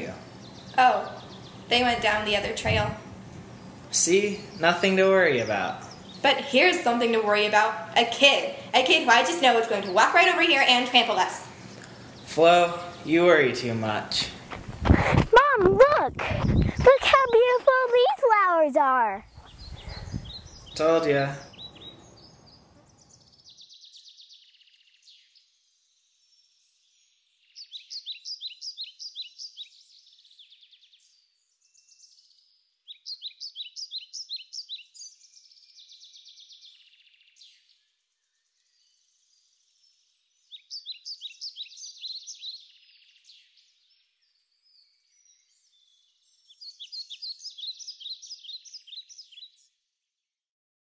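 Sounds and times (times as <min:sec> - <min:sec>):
songbird singing: 0:00.0 - 0:14.8, 0:15.4 - 0:49.9
faint bird twittering: 0:19.0 - 0:49.7.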